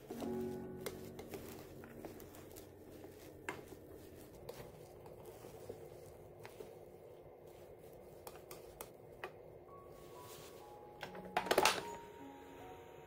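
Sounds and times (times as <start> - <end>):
rice paddle scraping a pot: 0.0 - 8.9.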